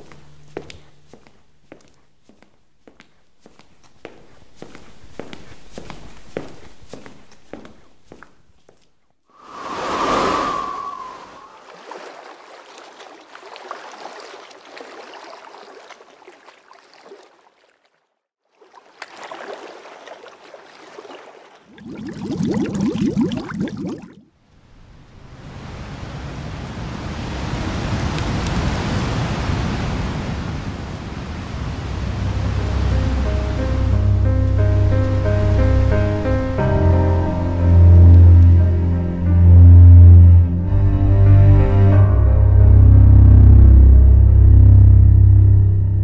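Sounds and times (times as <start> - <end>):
music with low sustained notes: 0.0 - 1.1, 32.1 - 46.0
wind: 3.8 - 41.4
sea waves: 9.3 - 24.2, 24.8 - 40.4
whoosh: 9.4 - 11.6
waves lapping against hull: 9.4 - 24.2.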